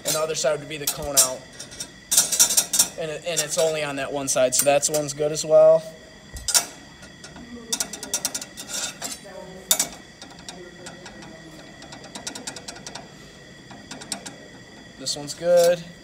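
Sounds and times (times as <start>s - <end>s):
metal plate clicking on bench: 6.4s - 13.1s, 13.7s - 14.5s.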